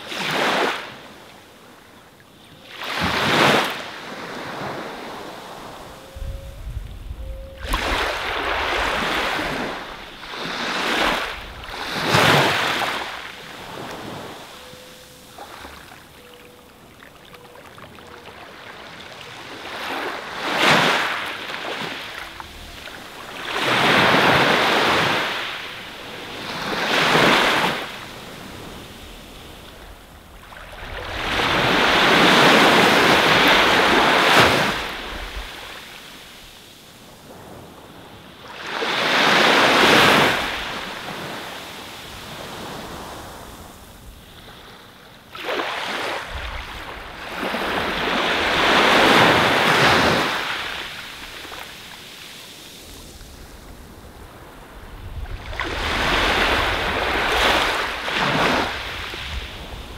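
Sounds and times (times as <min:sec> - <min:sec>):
sea waves washing onto beach: 0:18.5 - 0:59.9.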